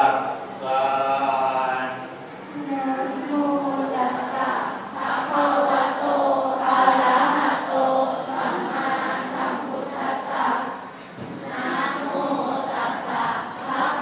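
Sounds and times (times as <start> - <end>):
children chanting in unison: 3.7 - 14.0.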